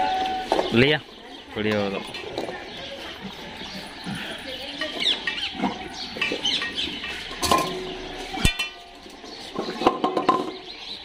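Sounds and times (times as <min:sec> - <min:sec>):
metal dog bowls clanging on tiles: 0:04.2 - 0:10.7.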